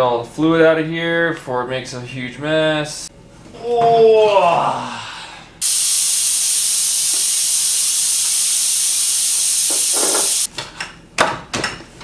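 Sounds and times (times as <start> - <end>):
pressurised spray hissing: 5.6 - 10.5.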